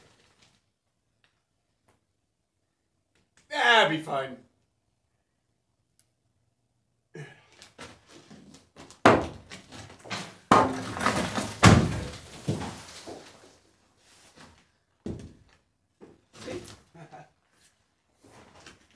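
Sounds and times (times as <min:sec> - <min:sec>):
debris rattling: 0:09.8 - 0:13.6
sledgehammer breaking stone: 0:10.1 - 0:13.2.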